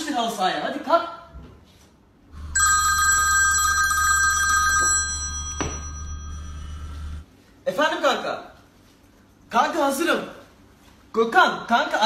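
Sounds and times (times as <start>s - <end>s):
mobile phone ringing: 2.3s - 7.2s
low hum: 4.7s - 7.2s.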